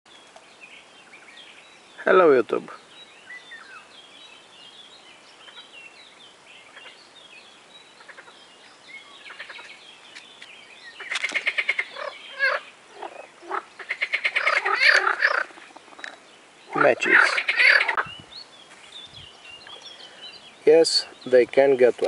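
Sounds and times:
faint bird chirps: 0:00.1 - 0:21.4
frogs croaking: 0:06.6 - 0:07.1, 0:07.8 - 0:09.8, 0:10.9 - 0:18.3.

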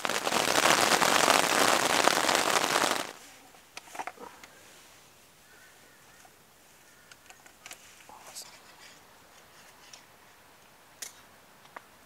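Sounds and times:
rain pattering on tent: 0:00.0 - 0:03.2.

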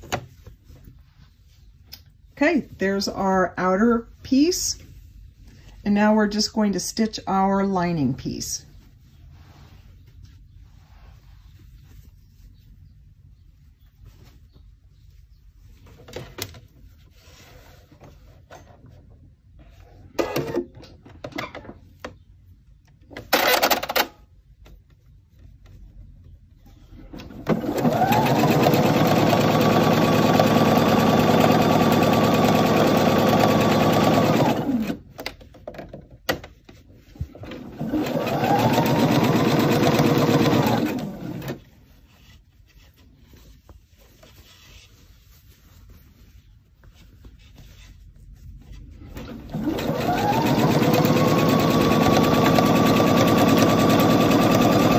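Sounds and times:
sewing machine stitching: 0:27.1 - 0:35.1, 0:37.4 - 0:41.7, 0:49.1 - 0:54.9.

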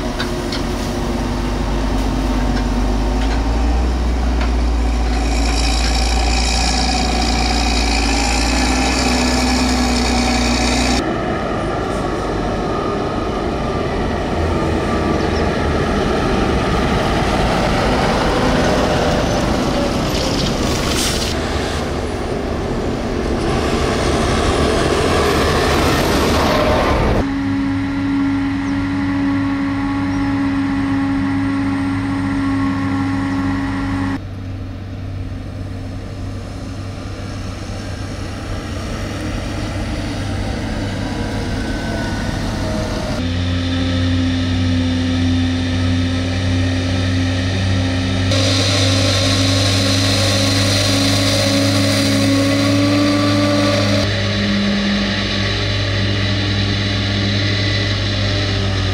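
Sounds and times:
tractor with trailer on stubble: 0:00.0 - 0:11.0, 0:17.8 - 0:22.1, 0:42.6 - 0:58.9
tractor engine: 0:00.0 - 0:11.1, 0:13.4 - 0:58.9
forage harvester humming: 0:27.3 - 0:58.9.

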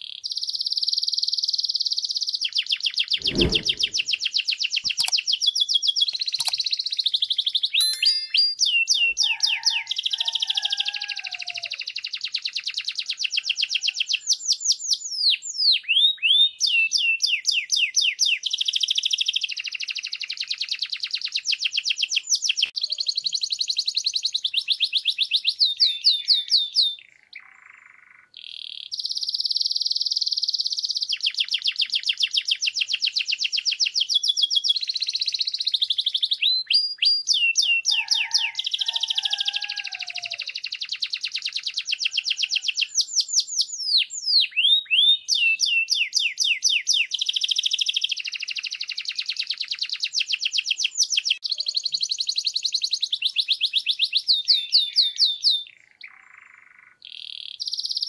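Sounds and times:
canary singing trills: 0:06.0 - 0:10.8, 0:34.2 - 0:49.0, 0:50.9 - 0:58.0.

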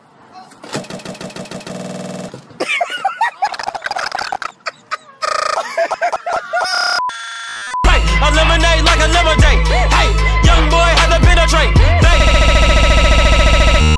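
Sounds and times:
chopped squawk-like cries: 0:03.4 - 0:05.9, 0:06.5 - 0:07.8
steady beep: 0:06.6 - 0:07.9
loud music with heavy bass: 0:07.8 - 0:13.9.

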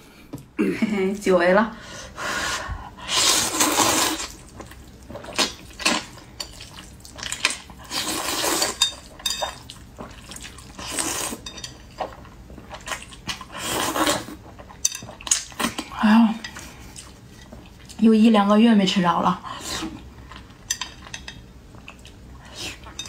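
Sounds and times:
person slurping noodles: 0:03.0 - 0:04.5, 0:07.8 - 0:08.8, 0:13.0 - 0:14.4.

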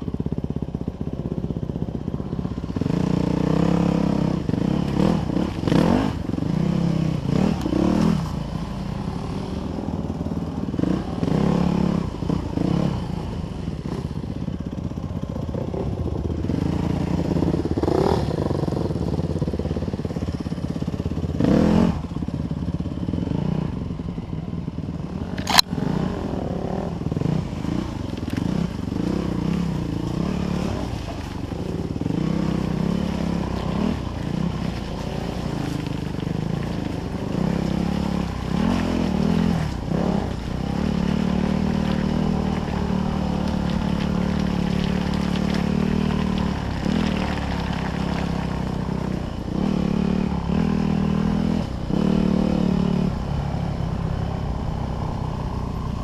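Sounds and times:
dirt bike engine revving: 0:02.7 - 0:09.7, 0:25.1 - 0:55.8.

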